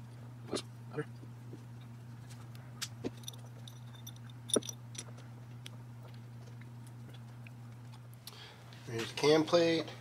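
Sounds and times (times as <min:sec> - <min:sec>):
steady low hum: 0:00.0 - 0:10.0
metal parts clicking: 0:03.2 - 0:05.0.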